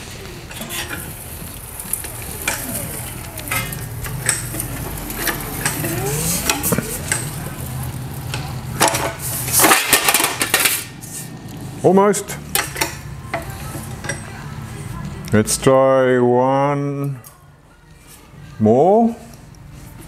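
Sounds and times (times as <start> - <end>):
sheet metal scraping in rollers: 0.0 - 15.0
metallic clanks: 0.5 - 11.1, 12.3 - 14.4.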